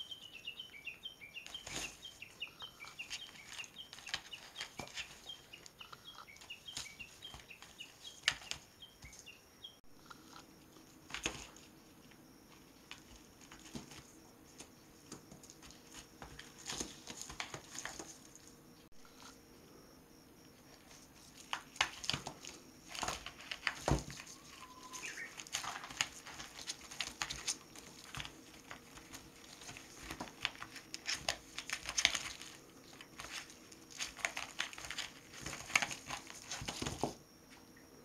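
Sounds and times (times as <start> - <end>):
newspaper crinkling under kitten: 1.4 - 9.3, 20.8 - 37.2.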